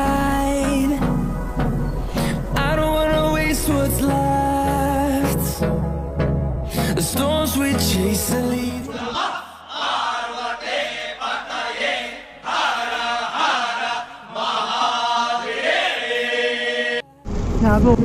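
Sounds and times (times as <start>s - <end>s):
chanted vocals: 0.0s - 6.0s, 6.8s - 17.3s
loud low rumble: 0.0s - 8.3s.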